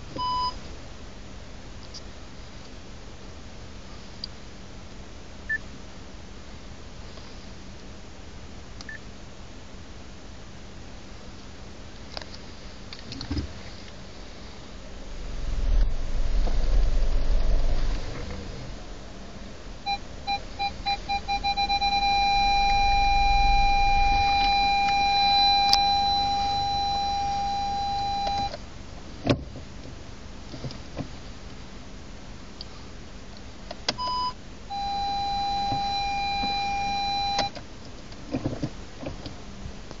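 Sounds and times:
parking sensor beeping: 0:00.1 - 0:00.6, 0:19.8 - 0:28.6, 0:33.9 - 0:37.6
two-note chime: 0:20.7 - 0:28.4
click: 0:37.4 - 0:38.2.

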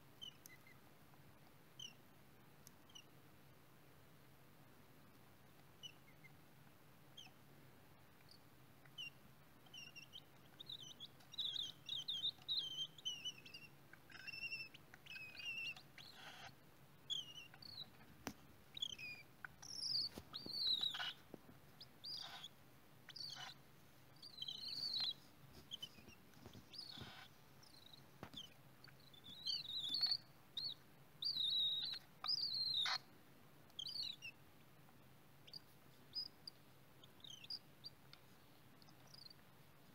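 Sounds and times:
chicks chirping: 0:01.8 - 0:02.0, 0:08.2 - 0:33.1, 0:33.7 - 0:34.4, 0:35.4 - 0:38.0, 0:38.8 - 0:39.4.

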